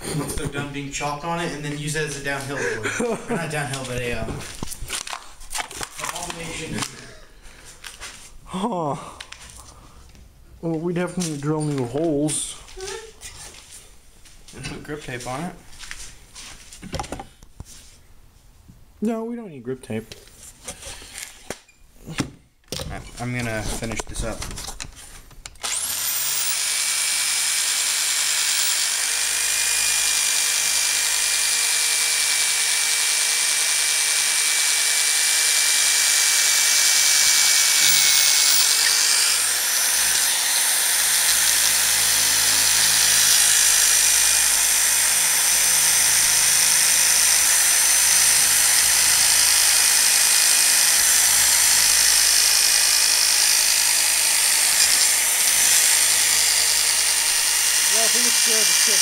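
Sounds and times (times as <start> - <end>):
power drill whining: 25.5 - 59.0.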